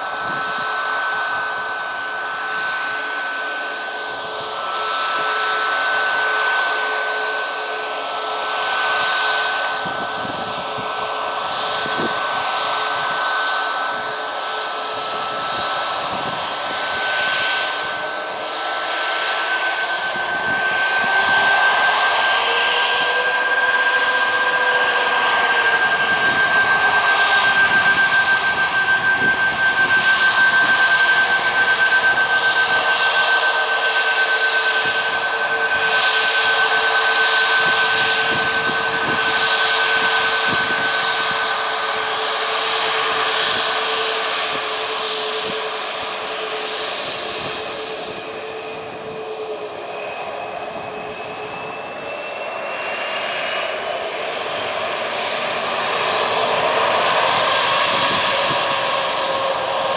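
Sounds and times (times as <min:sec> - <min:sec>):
jet engines whining: 0:00.0 - 0:59.9.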